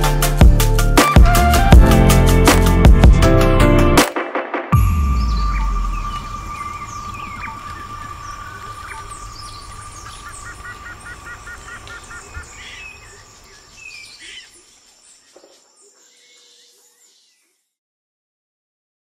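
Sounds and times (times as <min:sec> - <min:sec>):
birds chirping and calling: 0:05.0 - 0:17.6
high insect-like whine: 0:05.4 - 0:13.8.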